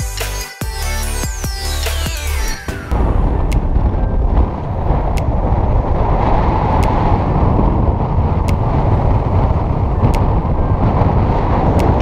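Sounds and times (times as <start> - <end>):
wind buffeting microphone: 2.8 - 12.0.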